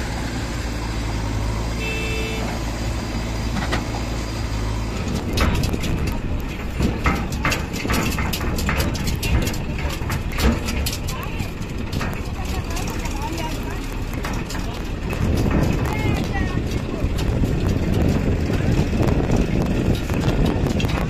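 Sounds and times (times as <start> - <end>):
diesel engines running: 0.0 - 21.0
brief tone: 1.8 - 2.5
uneven crackling and sharp knocks: 3.4 - 21.0.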